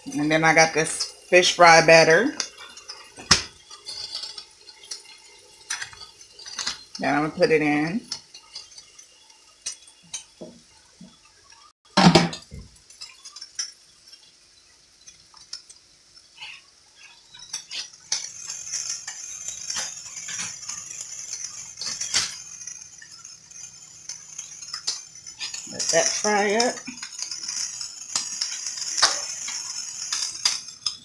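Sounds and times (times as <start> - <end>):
steady high hiss: 12.2 - 31.0
dishes and utensils clinking: 17.2 - 31.0.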